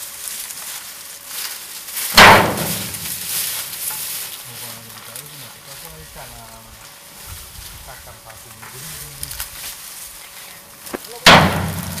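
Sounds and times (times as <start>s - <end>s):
dry cane crackling and rustling: 0.0s - 12.0s
stalks thumping onto truck: 2.1s - 3.3s, 10.9s - 12.0s.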